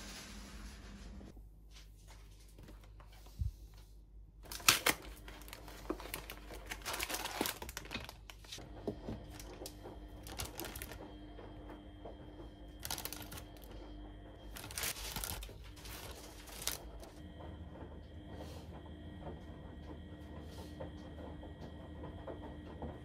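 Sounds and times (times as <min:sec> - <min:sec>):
plastic bag crinkling: 0:04.5 - 0:08.6, 0:10.2 - 0:11.0, 0:12.8 - 0:13.7, 0:14.5 - 0:17.1.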